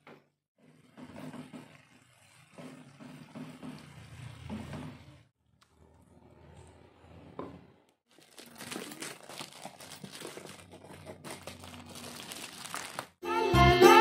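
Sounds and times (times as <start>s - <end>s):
wrapping crinkling and rustling: 8.1s - 13.2s.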